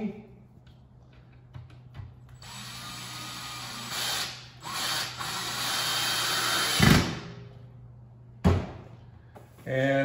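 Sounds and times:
cordless drill driving screw: 2.4 - 7.0.

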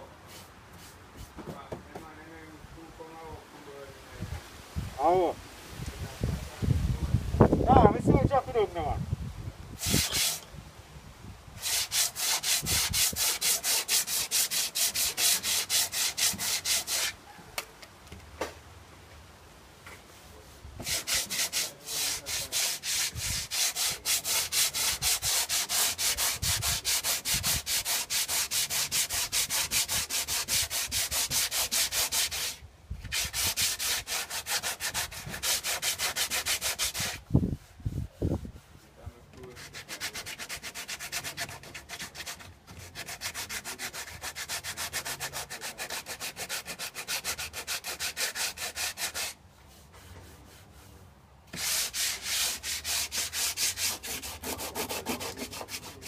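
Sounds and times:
sandpaper scratching painted metal: 9.8 - 10.4, 11.6 - 17.2, 20.8 - 56.0.

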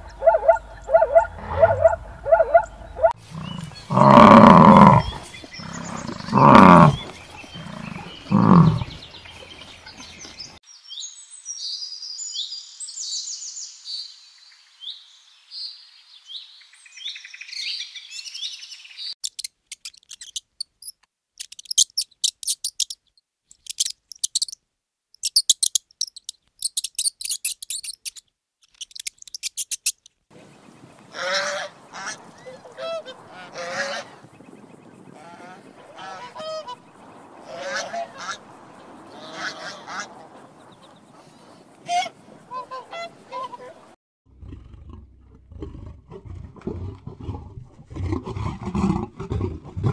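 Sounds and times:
swans honking: 0.0 - 5.0, 30.4 - 34.3, 35.1 - 44.0
bison grunting: 1.2 - 9.1, 44.3 - 49.9
high chirping calls: 19.0 - 24.6, 25.2 - 30.9
rapid sharp high clicks: 19.2 - 24.6, 25.2 - 30.2.

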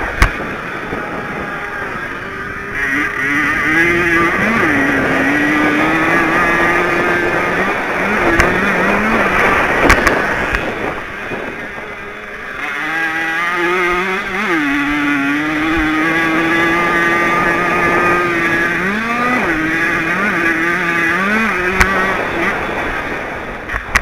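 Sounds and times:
two-stroke moped engine revving: 0.0 - 24.0
wind rush: 0.0 - 24.0.

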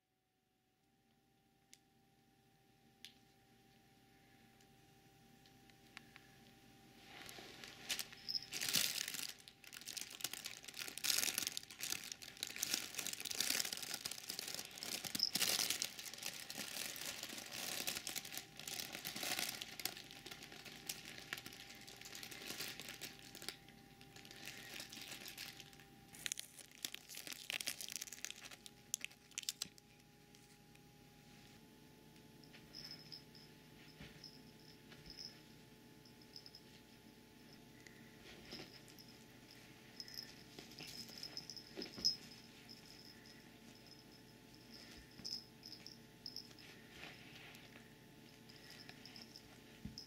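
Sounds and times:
fabric tunnel crinkling: 7.0 - 29.6.

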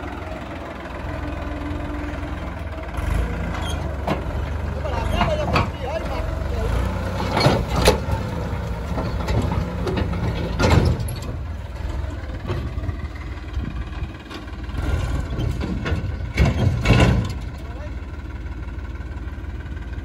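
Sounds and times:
tractor diesel engine running: 0.0 - 20.0
sharp clunks: 15.3 - 17.5.

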